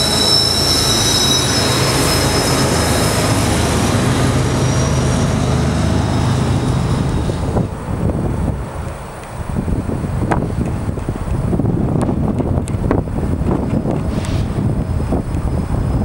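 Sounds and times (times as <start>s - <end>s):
high wheel squeal: 0.0s - 7.6s
diesel locomotive engines running: 0.0s - 16.0s.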